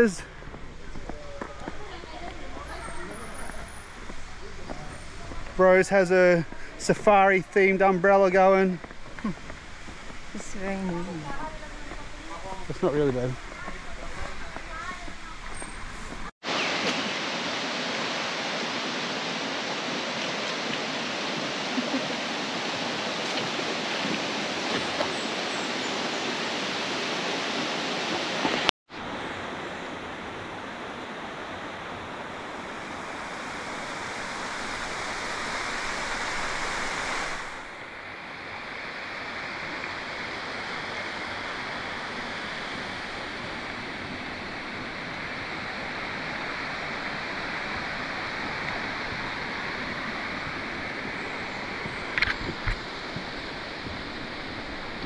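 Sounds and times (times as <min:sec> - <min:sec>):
rain hissing: 0:00.0 - 0:28.7, 0:31.2 - 0:55.0.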